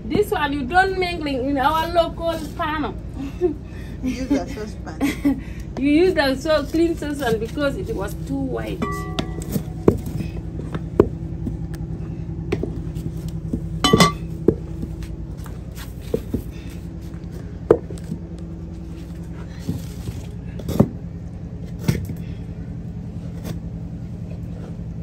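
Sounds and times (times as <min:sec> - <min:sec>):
steady low rumble: 0:00.0 - 0:25.0
metallic clanks: 0:08.7 - 0:10.2, 0:13.8 - 0:14.6.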